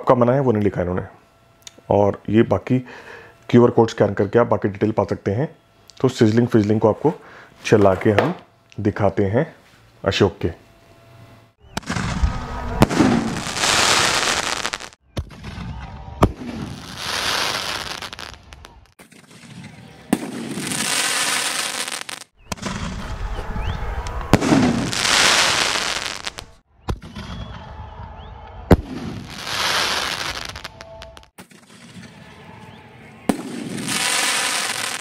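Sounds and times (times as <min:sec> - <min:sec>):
firework launch report: 0:11.6 - 0:35.0
firework crackling sizzle: 0:11.8 - 0:15.0, 0:16.3 - 0:19.0, 0:20.2 - 0:23.0, 0:24.3 - 0:26.6, 0:28.8 - 0:31.3, 0:33.4 - 0:35.0.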